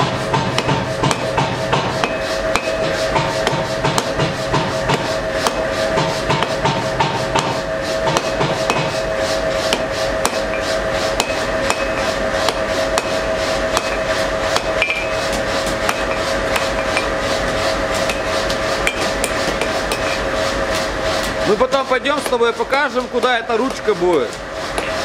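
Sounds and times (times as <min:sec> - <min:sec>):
hammer striking steel on anvil: 0:00.3 - 0:09.1, 0:09.7 - 0:17.2, 0:17.9 - 0:20.2, 0:23.6 - 0:25.0.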